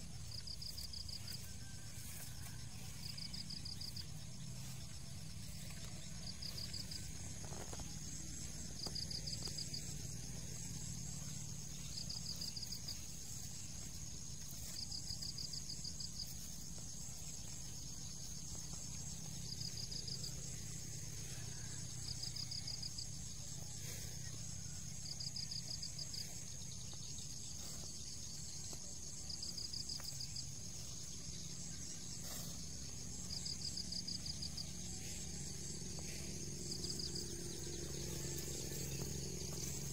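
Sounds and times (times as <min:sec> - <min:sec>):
faint low rumble: 0:00.0 - 0:25.8
insect pulsed trill: 0:00.0 - 0:39.9.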